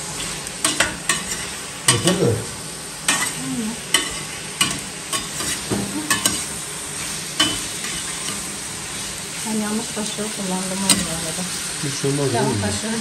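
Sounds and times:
zucchini sizzling in a pot: 0:00.0 - 0:13.0
metal spoon clinking against pot: 0:03.1 - 0:06.4, 0:07.4 - 0:08.4.

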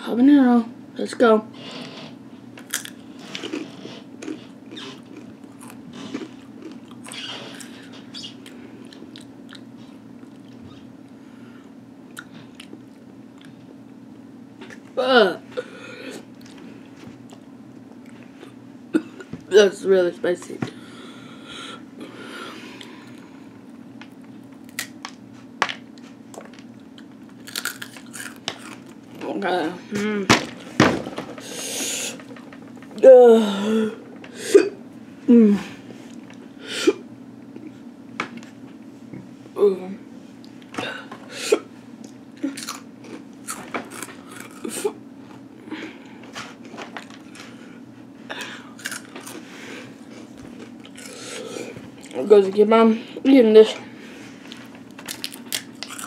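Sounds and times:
faint steady hum: 0:00.0 - 0:56.0
person chewing crunchy chips: 0:02.6 - 0:10.6, 0:24.5 - 0:25.0, 0:26.3 - 0:29.2, 0:42.4 - 0:45.0, 0:48.4 - 0:52.2, 0:54.6 - 0:56.0.

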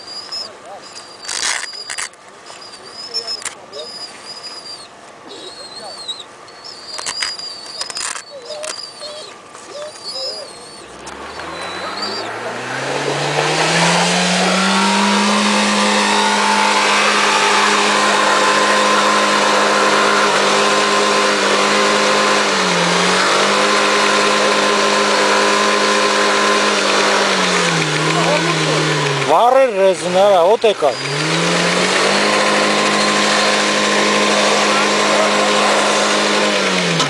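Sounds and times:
car engine revving: 0:10.8 - 0:37.0.

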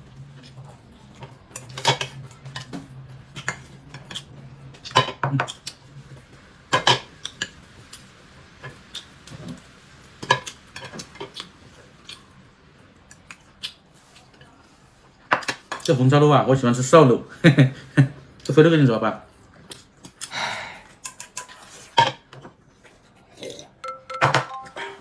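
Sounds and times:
tableware clinking: 0:23.8 - 0:25.0.

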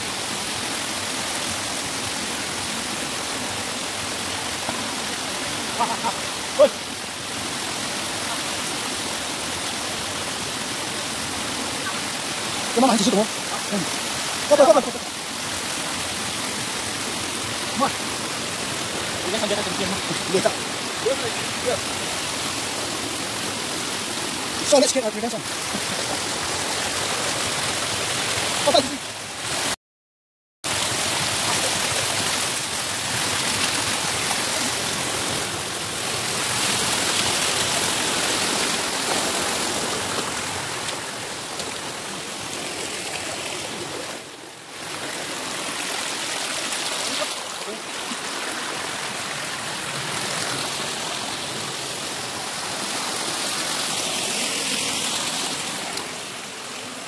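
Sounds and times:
stream and small waterfall rushing: 0:00.0 - 0:29.8, 0:30.6 - 0:57.0.

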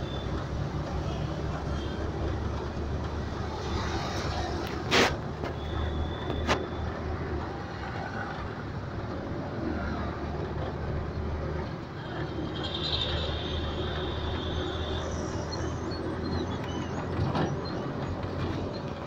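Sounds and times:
auto-rickshaw engine running: 0:00.0 - 0:19.0
road and traffic noise: 0:00.0 - 0:19.0.

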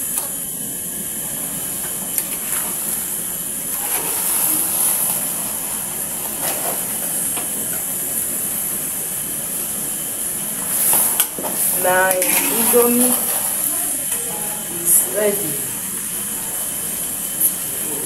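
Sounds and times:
cooking hiss: 0:00.0 - 0:18.0
spoon scraping metal pot: 0:12.1 - 0:13.6.

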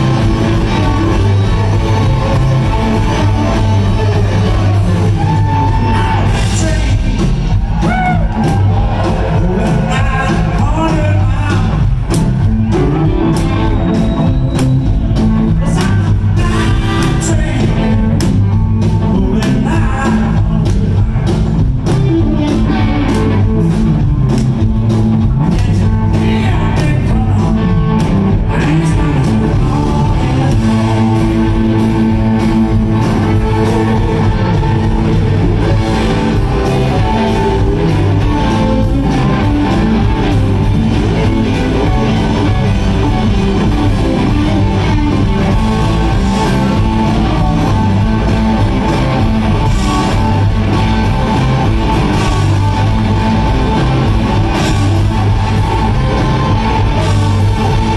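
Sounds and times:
bass guitar: 0:00.0 - 0:57.9
drum kit: 0:00.0 - 0:57.9
electric guitars: 0:00.0 - 0:57.9.

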